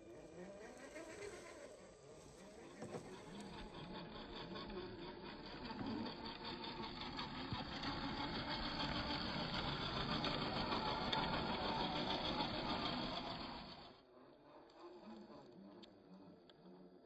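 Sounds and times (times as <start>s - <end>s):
toy car electric motor whirring: 0.0s - 17.0s.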